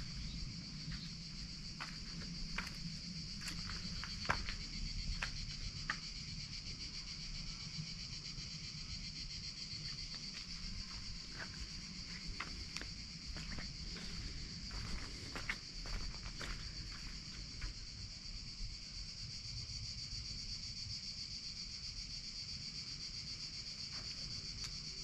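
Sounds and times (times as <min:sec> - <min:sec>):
cicadas buzzing: 0:00.0 - 0:25.0
footsteps on stone paving: 0:00.1 - 0:06.1, 0:10.2 - 0:17.8.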